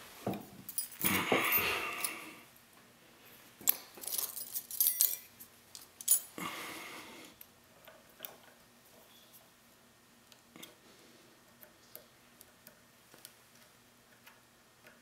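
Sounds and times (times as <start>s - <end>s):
metal tools clinking and rattling: 3.6s - 6.4s.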